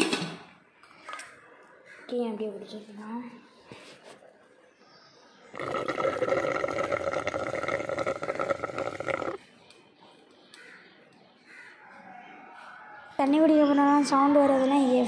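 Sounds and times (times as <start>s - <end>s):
buzzing drinking sound effect: 5.6s - 9.4s.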